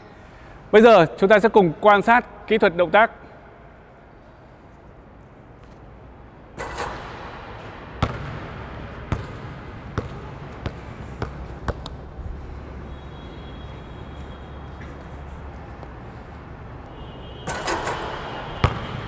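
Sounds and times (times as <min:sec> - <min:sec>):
basketball bouncing on court floor: 0:06.6 - 0:12.0, 0:17.4 - 0:19.0.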